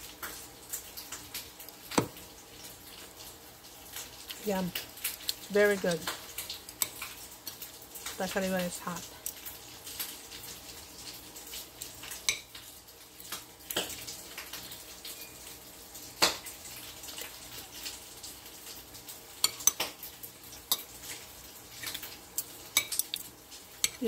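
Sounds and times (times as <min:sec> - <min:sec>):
faint frying sizzle: 0:00.0 - 0:24.0.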